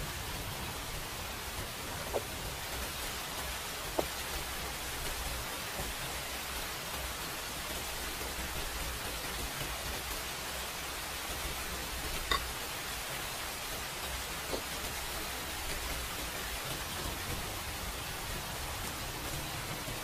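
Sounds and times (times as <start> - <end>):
steady hiss: 0.0 - 20.0
metal spoon clinking bowl: 12.3 - 12.5.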